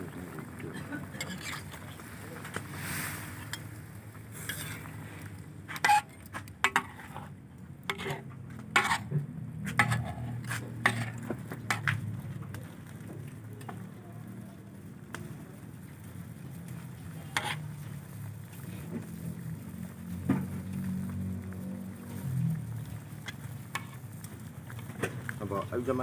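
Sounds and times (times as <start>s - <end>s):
seafood boiling: 0.0s - 26.0s
metal utensil clinking against wok: 9.7s - 11.9s.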